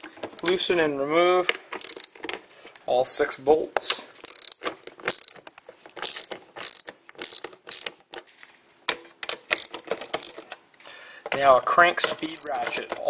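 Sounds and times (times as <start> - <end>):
ratchet clicking: 1.8 - 2.2, 4.2 - 5.4, 6.0 - 8.0, 9.5 - 10.4, 12.2 - 12.6.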